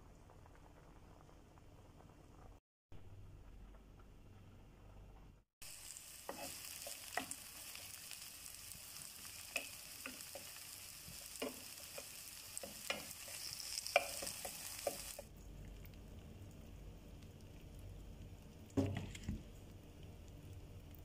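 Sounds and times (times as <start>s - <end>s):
mushrooms sizzling in frying pan: 5.6s - 15.3s
wooden spatula scraping pan: 6.2s - 7.4s.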